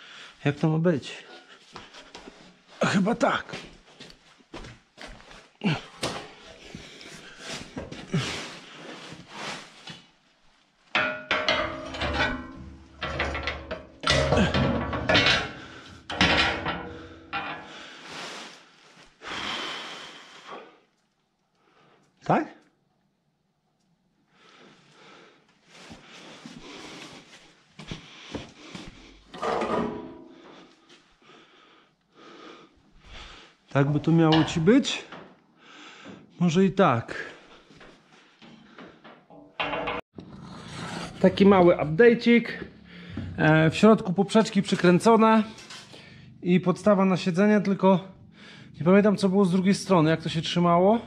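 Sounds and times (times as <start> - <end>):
sheet metal panels knocking: 11.0 - 17.7, 39.2 - 40.0
metal panels scraping: 11.0 - 18.0, 29.3 - 30.6, 39.3 - 40.0, 43.0 - 46.1.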